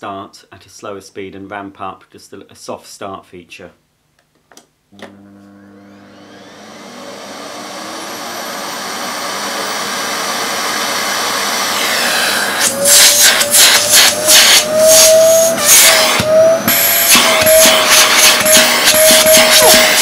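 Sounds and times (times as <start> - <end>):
vacuum cleaner motor whine: 5.0 - 20.0
vacuum suction whistling: 7.5 - 20.0.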